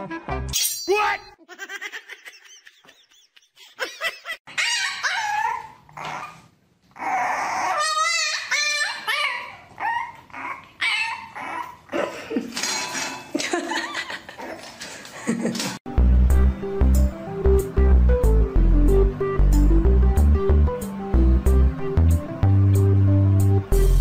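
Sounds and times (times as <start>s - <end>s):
dog whining and yipping: 4.5s - 11.9s.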